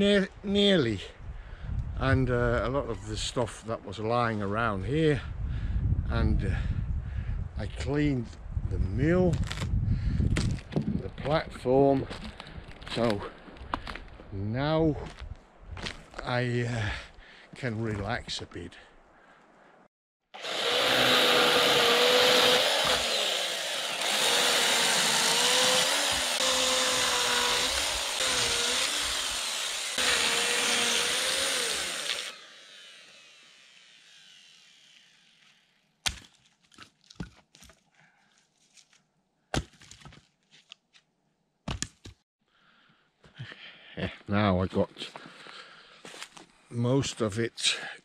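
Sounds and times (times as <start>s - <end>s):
chainsaw cutting wood: 20.3s - 36.2s.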